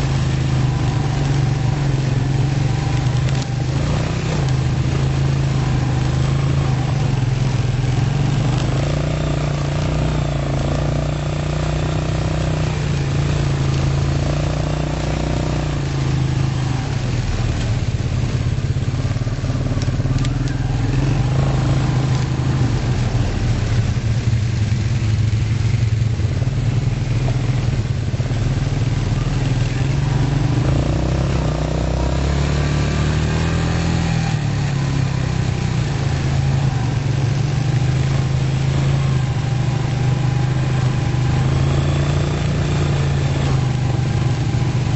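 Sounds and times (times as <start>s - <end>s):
quad bike engine running: 0.0s - 44.9s.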